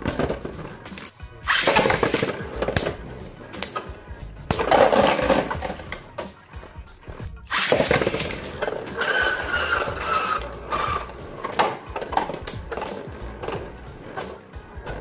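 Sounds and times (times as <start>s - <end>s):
spinning tops grinding on plastic: 7.5s - 14.2s.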